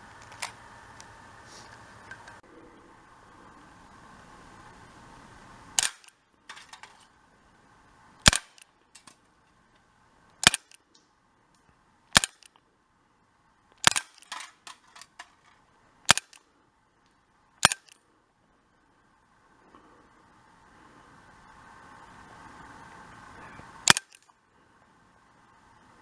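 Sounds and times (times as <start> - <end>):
steady gas hiss: 0.7 - 5.8
air pistol shots: 5.8 - 6.2, 8.2 - 8.7, 10.4 - 10.8, 12.1 - 12.5, 13.8 - 14.6, 16.1 - 16.4, 17.6 - 18.0, 23.8 - 24.3.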